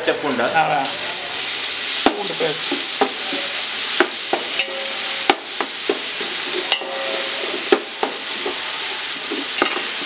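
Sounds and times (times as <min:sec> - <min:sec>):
garlic sizzling in hot oil: 0:00.0 - 0:10.0
metal spatula scraping pot: 0:06.5 - 0:07.7.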